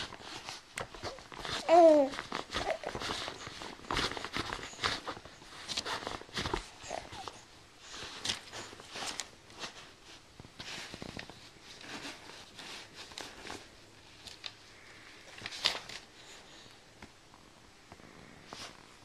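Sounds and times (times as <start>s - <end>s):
soft rustling and scuffing: 0.0s - 19.0s.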